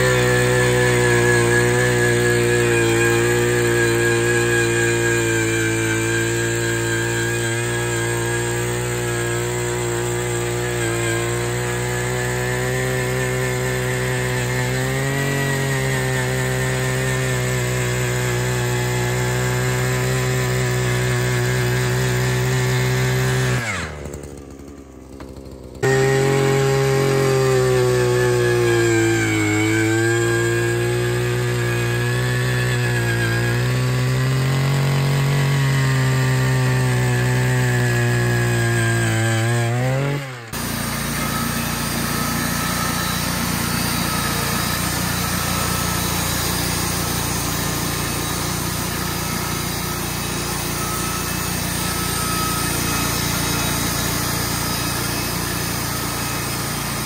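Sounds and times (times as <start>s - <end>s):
rough steady engine noise: 0.0s - 29.7s, 40.3s - 57.0s
engine-driven saw running: 0.0s - 57.0s.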